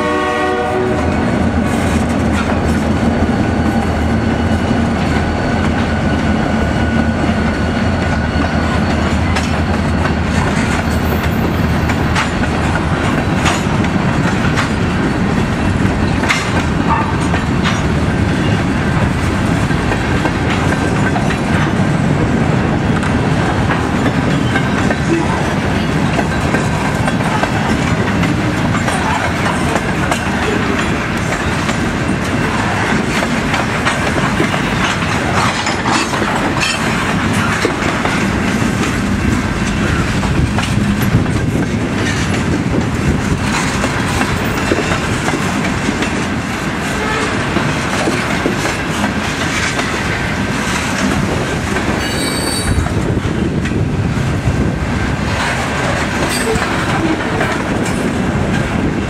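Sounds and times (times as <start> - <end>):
train wheels rumbling on rail: 0.0 - 59.0
wheels clattering over rail joints: 8.0 - 53.9.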